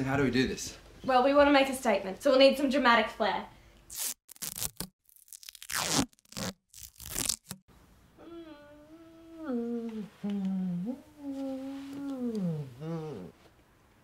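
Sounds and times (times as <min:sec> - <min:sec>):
duct tape ripping: 0:03.9 - 0:07.6
person humming a slow tune: 0:08.2 - 0:13.4.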